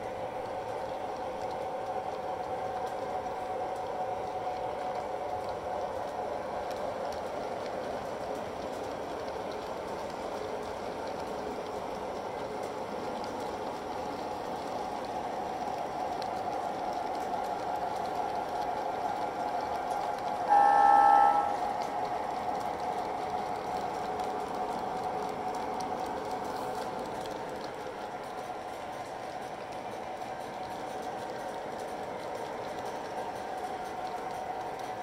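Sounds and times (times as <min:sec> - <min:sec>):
model train cars rolling: 0:00.0 - 0:35.0
electronic locomotive horn: 0:20.5 - 0:21.8.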